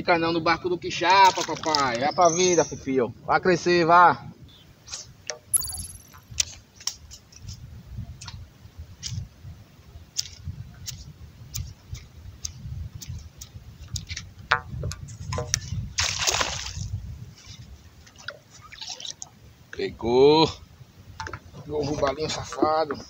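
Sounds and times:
water splashing around kayak: 0:16.0 - 0:17.0.

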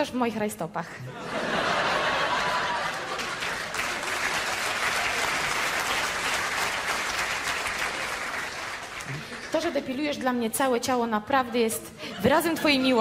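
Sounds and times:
audience applauding: 0:01.6 - 0:09.7.

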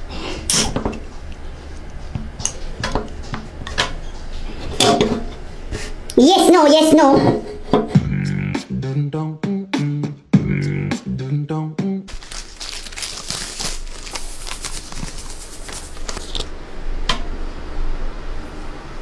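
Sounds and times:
music with a beat: 0:07.9 - 0:08.8, 0:09.4 - 0:11.2
plastic packet crinkling: 0:12.1 - 0:16.5.

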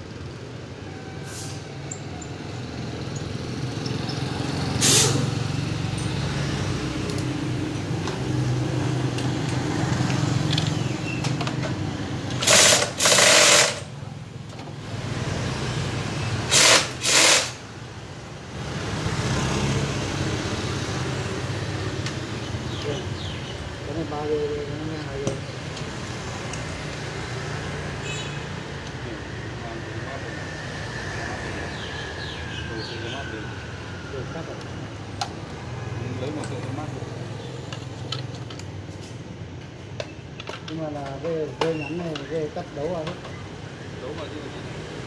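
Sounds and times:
short loud hiss bursts: 0:04.8 - 0:05.2, 0:16.5 - 0:17.6
small engine running: 0:12.4 - 0:13.9.

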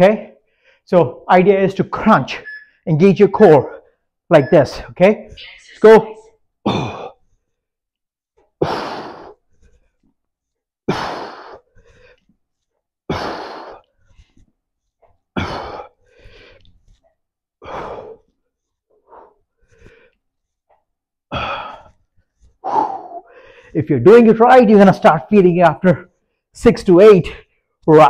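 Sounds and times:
quieter breaths: 0:00.4 - 0:00.9, 0:07.1 - 0:23.8.

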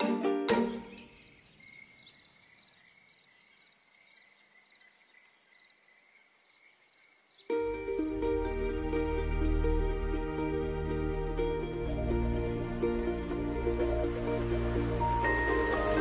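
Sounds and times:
background music: 0:00.0 - 0:01.2, 0:07.5 - 0:16.0
crickets chirping: 0:00.0 - 0:09.4.

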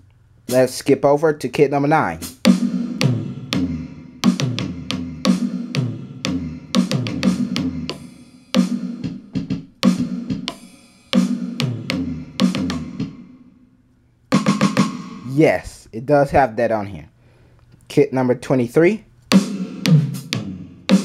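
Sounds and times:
electronic drum pattern: 0:02.2 - 0:13.5, 0:14.3 - 0:15.3, 0:19.3 - 0:21.0.

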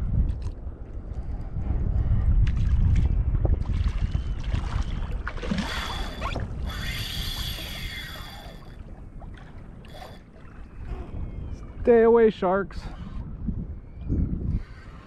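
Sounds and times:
wind buffeting microphone: 0:00.0 - 0:15.0
water moving around a kayak: 0:00.2 - 0:15.0
rushing hissy burst: 0:05.7 - 0:08.6.

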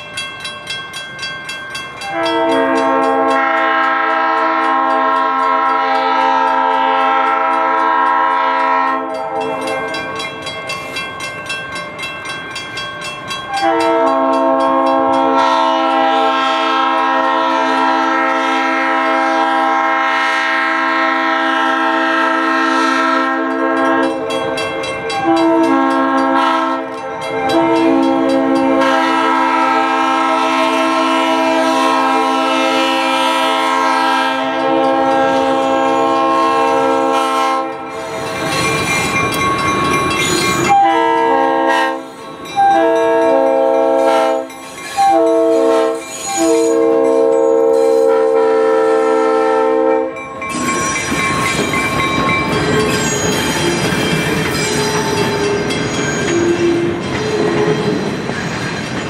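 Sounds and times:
diesel locomotive passing: 0:00.0 - 0:59.0
train air horn blasts: 0:02.0 - 0:09.6, 0:13.5 - 0:24.2, 0:25.2 - 0:38.3, 0:40.7 - 0:50.2.

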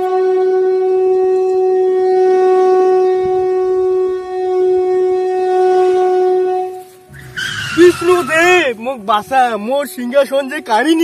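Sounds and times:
conch shell blown: 0:00.0 - 0:07.8.

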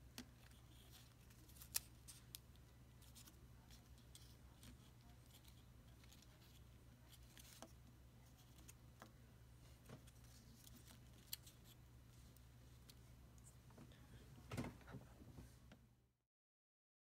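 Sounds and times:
low steady hum: 0:00.0 - 0:16.1
paper crinkling: 0:00.2 - 0:08.8, 0:09.8 - 0:12.4.

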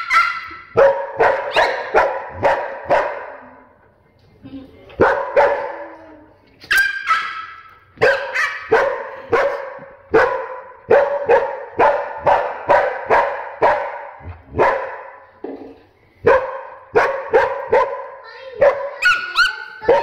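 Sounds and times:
dog barking sharply: 0:00.0 - 0:03.3, 0:06.7 - 0:15.1, 0:16.3 - 0:20.0.

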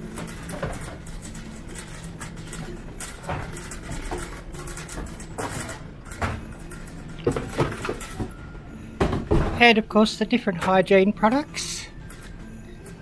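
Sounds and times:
knocks and clatter of trolleys: 0:00.0 - 0:08.4.

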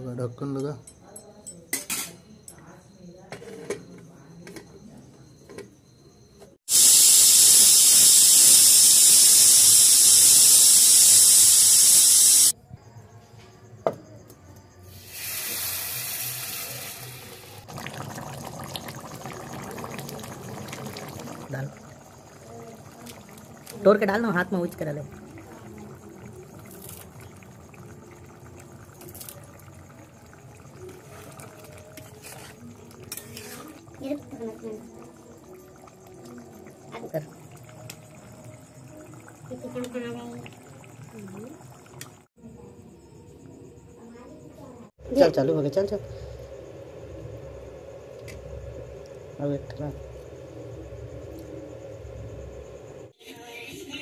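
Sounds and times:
pressure cooker hissing steam: 0:06.7 - 0:12.6, 0:14.9 - 0:18.1
curry bubbling in a pan: 0:17.0 - 0:42.4.

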